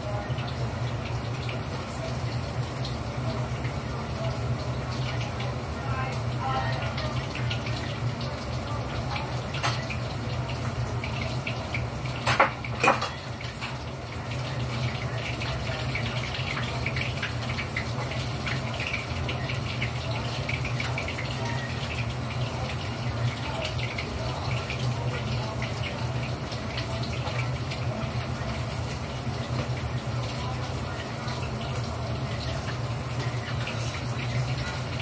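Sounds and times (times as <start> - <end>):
tap water running into sink: 0.0 - 35.0.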